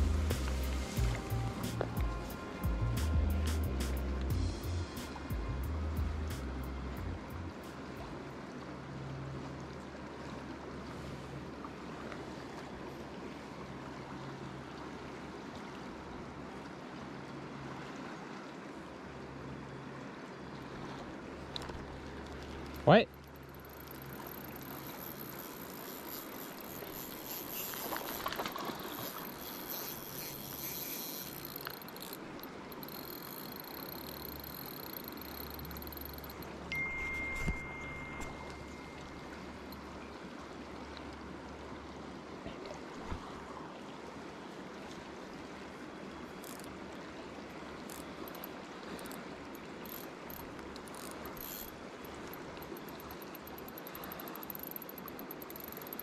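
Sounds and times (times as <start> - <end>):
river current rushing: 0.0 - 56.0
steady high tone: 36.7 - 39.4.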